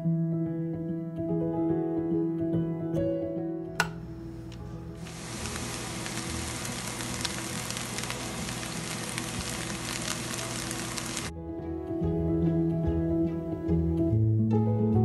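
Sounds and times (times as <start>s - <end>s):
food sizzling in frying pan: 5.0s - 11.3s.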